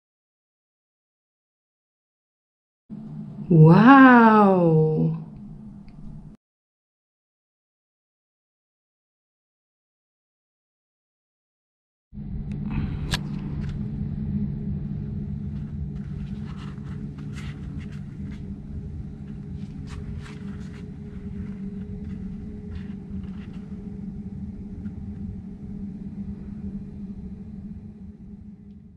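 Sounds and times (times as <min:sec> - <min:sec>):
low machine hum: 0:02.9 - 0:06.4, 0:12.2 - 0:28.9
toilet paper unrolling: 0:16.0 - 0:18.6.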